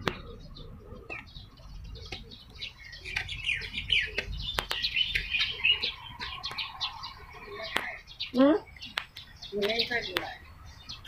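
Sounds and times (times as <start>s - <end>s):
small birds chirping: 0.0s - 11.0s
sharp clicks: 4.1s - 5.3s.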